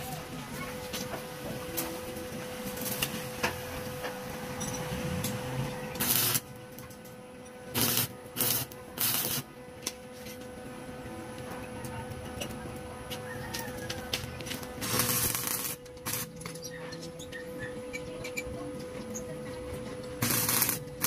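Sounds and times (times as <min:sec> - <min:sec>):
welding arc crackling: 0:00.0 - 0:10.4, 0:12.1 - 0:16.7, 0:20.2 - 0:21.0.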